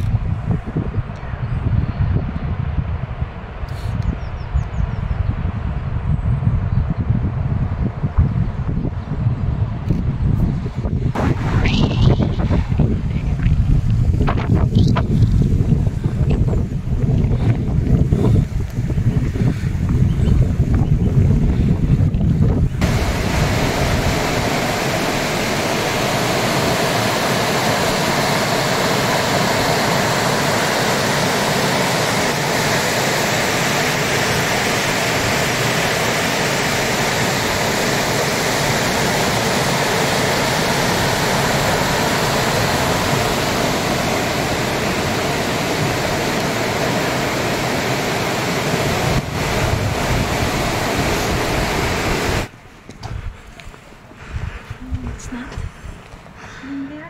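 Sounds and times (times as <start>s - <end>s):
stony river rushing: 22.8s - 52.6s.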